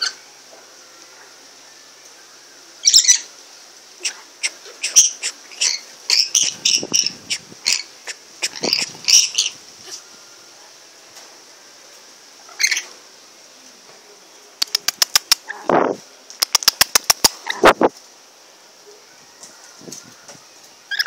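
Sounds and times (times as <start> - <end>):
parrots chattering: 2.8 - 3.3, 4.0 - 9.6, 12.5 - 12.9.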